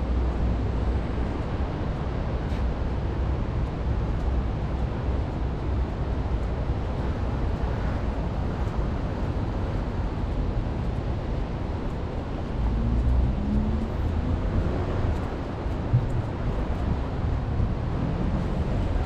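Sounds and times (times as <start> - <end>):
street ambience: 0.0 - 19.0
wind rumbling on microphone: 0.0 - 19.0
vehicle passing: 12.5 - 19.0.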